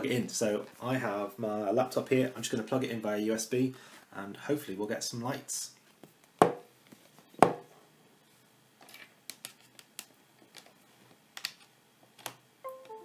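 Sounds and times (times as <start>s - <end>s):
cable clicking and rustling: 8.8s - 12.4s.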